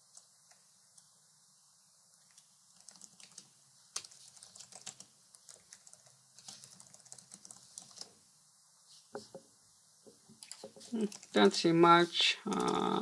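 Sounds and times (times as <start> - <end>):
keyboard typing: 2.2 - 8.2, 10.4 - 11.6, 12.5 - 13.0.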